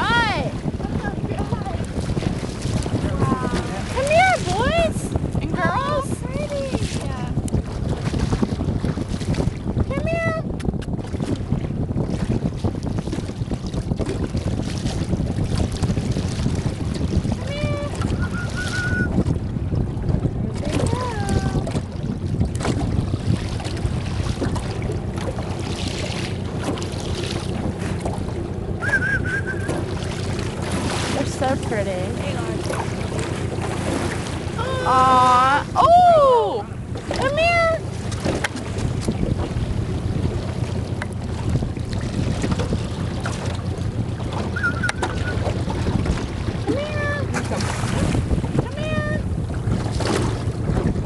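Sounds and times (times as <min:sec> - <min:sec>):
water slapping boat hull: 0:00.0 - 0:51.0
wind buffeting microphone: 0:00.0 - 0:51.0
short wavering whistle: 0:18.1 - 0:19.2, 0:28.8 - 0:29.8, 0:44.5 - 0:45.5
high rising and falling call: 0:28.8 - 0:29.8.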